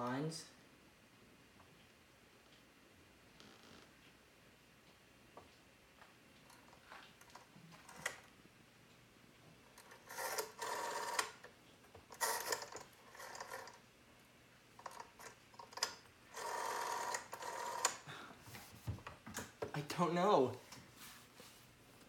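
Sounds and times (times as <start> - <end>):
rotary dial whirring: 6.5 - 8.3, 9.7 - 13.9, 14.8 - 18.0.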